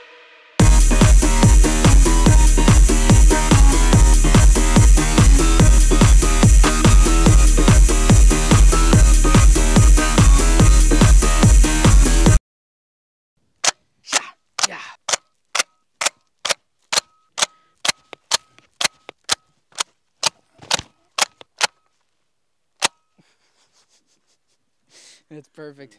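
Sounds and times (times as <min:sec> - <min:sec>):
gunshots with faint ring: 0:15.1 - 0:21.8.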